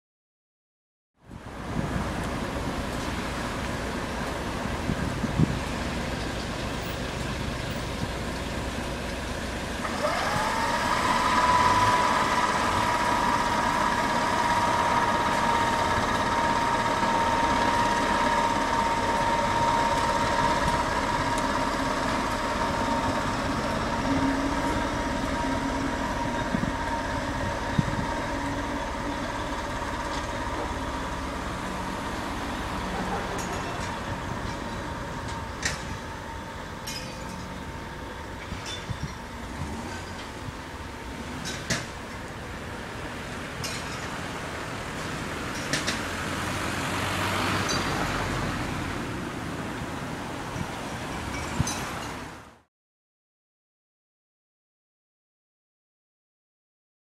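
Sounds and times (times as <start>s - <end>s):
diesel locomotive engine whining: 1.2s - 52.7s.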